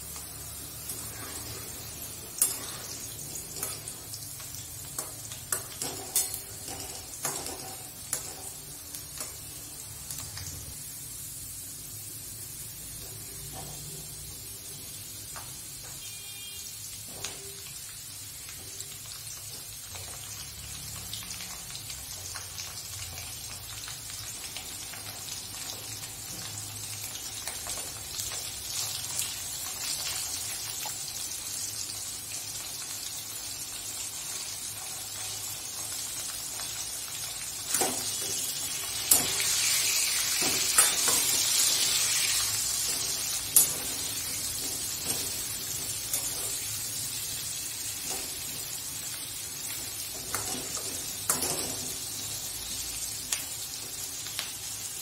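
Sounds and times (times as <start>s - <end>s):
food sizzling in oil: 0.0s - 55.0s
metal spatula scraping pan: 0.9s - 3.9s.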